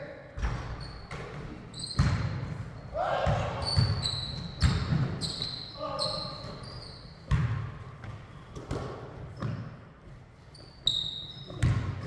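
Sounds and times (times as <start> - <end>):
basketball bouncing on wooden floor: 0.4 - 2.5, 3.2 - 5.2, 7.3 - 9.7, 11.5 - 12.0
sneaker squeak: 0.4 - 7.6, 8.3 - 9.8, 10.4 - 12.0.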